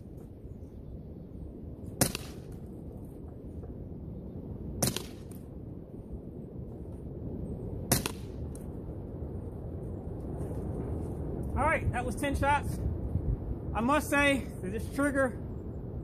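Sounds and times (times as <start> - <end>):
wind rumble on microphone: 0.0 - 16.0
air pistol shots with click: 2.0 - 2.6, 4.8 - 5.4, 7.9 - 8.4.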